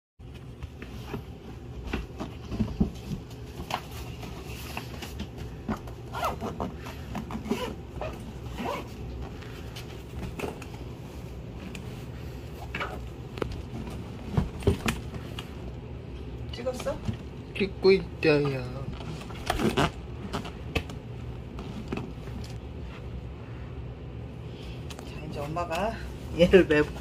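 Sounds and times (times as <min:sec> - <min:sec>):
zipper and fabric rustling: 0:03.3 - 0:10.3, 0:18.8 - 0:20.7.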